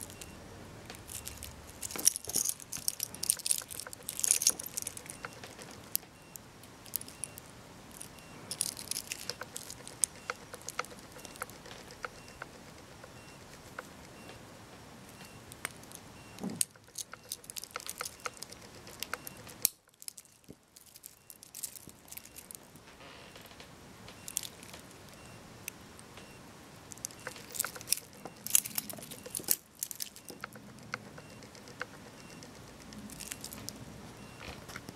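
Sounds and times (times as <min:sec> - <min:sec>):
metal watch bracelet clinking: 0:00.0 - 0:06.0, 0:06.8 - 0:13.9, 0:15.8 - 0:22.6, 0:26.9 - 0:34.3.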